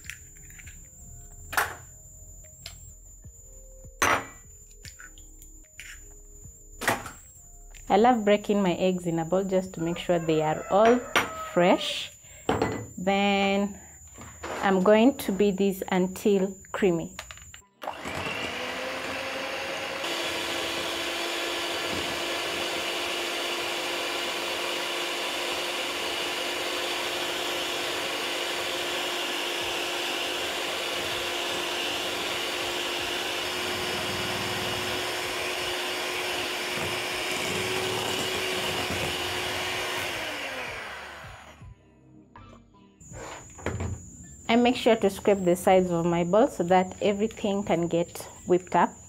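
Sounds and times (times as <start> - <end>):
electric hand mixer running: 17.8 - 41.7.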